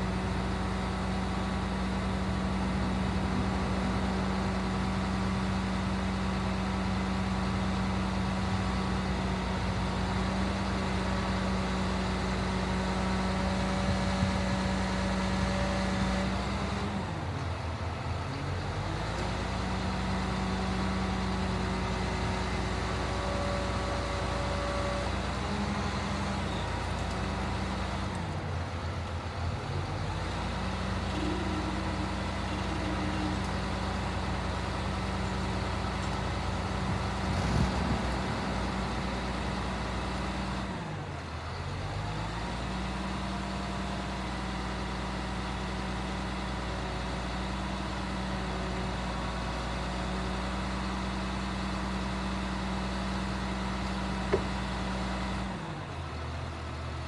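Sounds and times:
truck engine idling: 16.6s - 43.1s.

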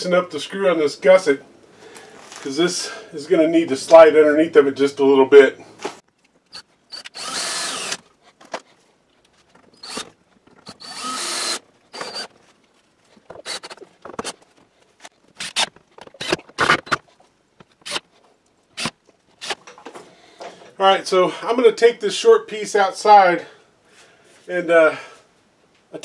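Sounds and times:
power drill running: 6.5s - 8.0s, 9.8s - 12.3s, 13.4s - 13.8s.

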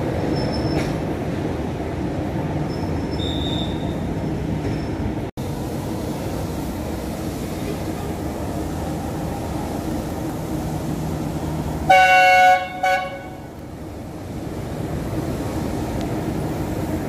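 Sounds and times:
train rumbling: 0.0s - 17.0s
two-tone locomotive horn: 11.9s - 13.5s.

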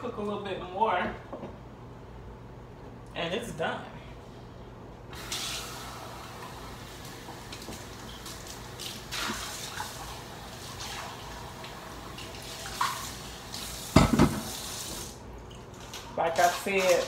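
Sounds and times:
steady low hum: 0.0s - 5.2s
water running from tap: 5.2s - 15.2s, 16.2s - 17.0s.

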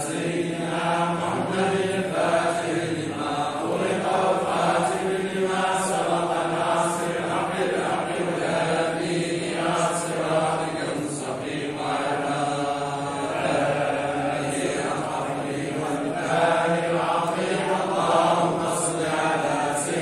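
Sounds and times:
men chanting in unison: 0.0s - 20.0s.

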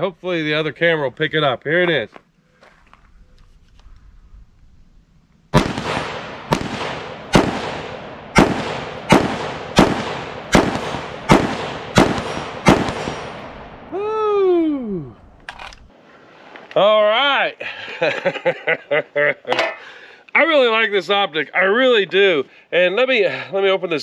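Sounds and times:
rifle shots with echo: 5.5s - 13.9s.

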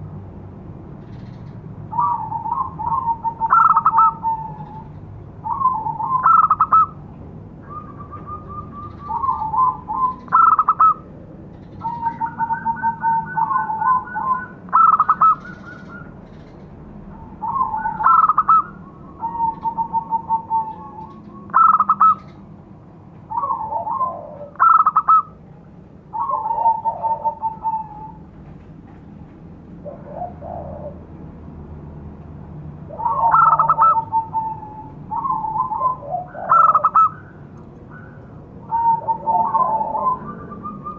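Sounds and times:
dove cooing song: 1.1s - 7.0s, 7.6s - 22.5s, 23.2s - 25.4s, 26.1s - 28.4s, 29.7s - 31.4s, 32.8s - 40.9s.

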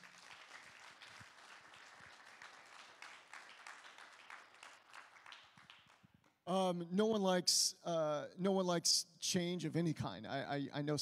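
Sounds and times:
faint crowd applauding: 0.0s - 6.3s.

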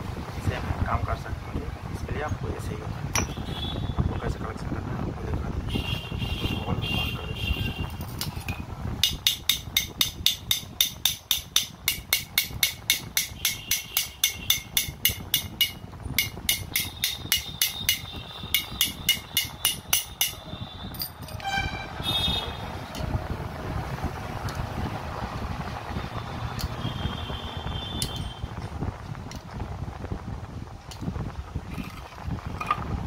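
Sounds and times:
hammer striking metal: 3.2s - 3.4s, 9.0s - 21.5s
metal parts clinking: 7.9s - 8.6s, 19.9s - 21.5s.

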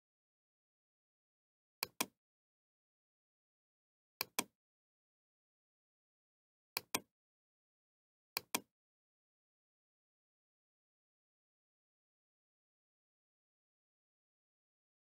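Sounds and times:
computer mouse clicking: 1.8s - 2.1s, 4.2s - 4.5s, 6.8s - 7.1s, 8.4s - 8.7s.

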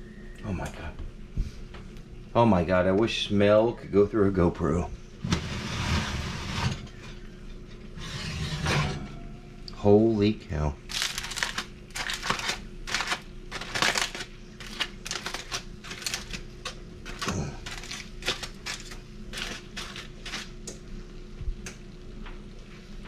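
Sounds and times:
aluminium foil crinkling: 10.8s - 20.7s.

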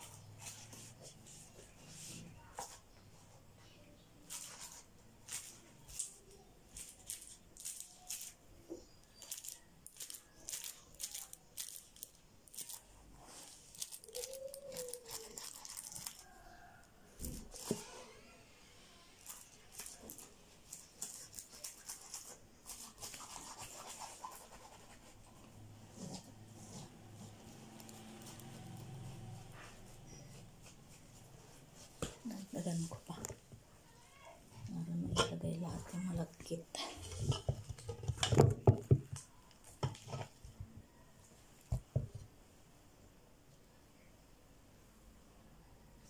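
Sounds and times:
plastic bag rustling: 4.2s - 16.4s, 17.3s - 17.9s, 19.2s - 23.2s.

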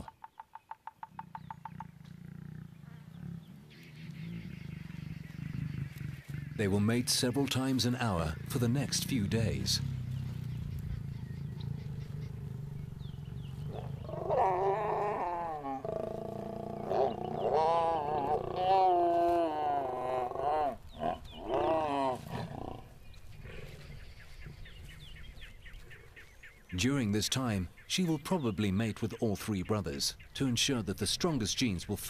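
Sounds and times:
lions snarling and growling: 1.4s - 6.9s, 8.2s - 26.2s
low rumble: 2.0s - 18.6s.

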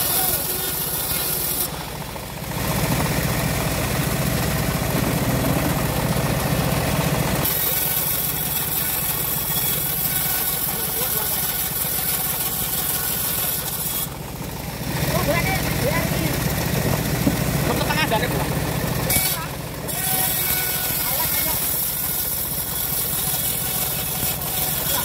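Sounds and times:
saw blade ripping through wood: 0.0s - 1.9s, 7.4s - 14.2s, 19.1s - 25.0s
low engine drone: 0.0s - 7.5s, 14.1s - 19.9s.

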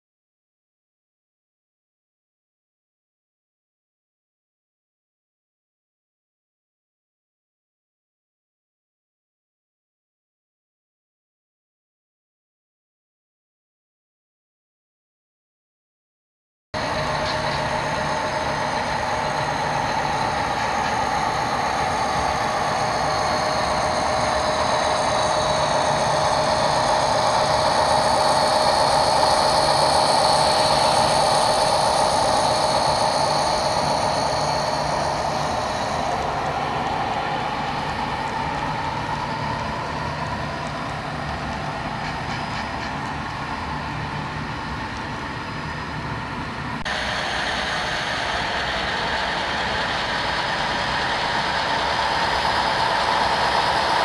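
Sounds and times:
train locomotive drone: 16.8s - 54.0s
train whine: 16.8s - 54.0s.

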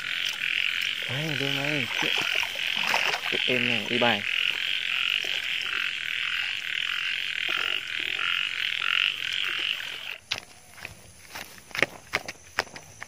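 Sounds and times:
frogs calling: 0.0s - 11.4s
footsteps crunching through grass: 9.6s - 13.0s.

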